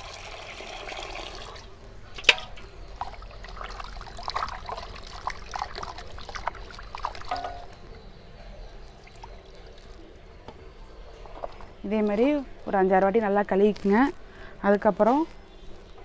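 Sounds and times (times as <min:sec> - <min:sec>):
tap water running into pot: 0:00.0 - 0:07.7.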